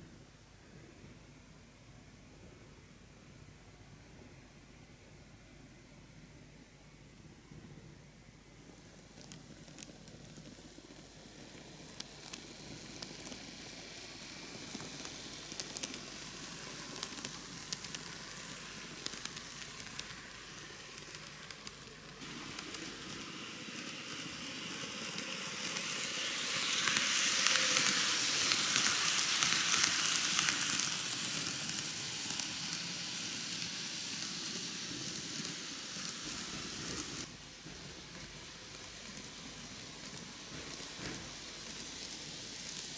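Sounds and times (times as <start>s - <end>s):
model train running on track: 8.6s - 42.9s.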